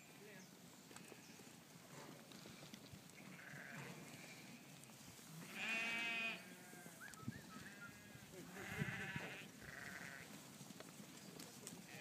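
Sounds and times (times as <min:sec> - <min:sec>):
sheep bleating: 0:03.2 - 0:04.7, 0:05.4 - 0:07.0, 0:07.7 - 0:10.3.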